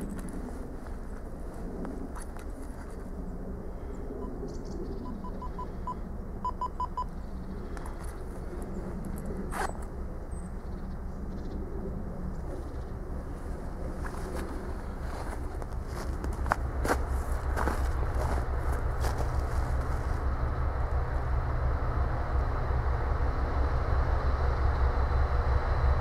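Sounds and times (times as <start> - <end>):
diesel locomotive engine droning: 0.0 - 26.0.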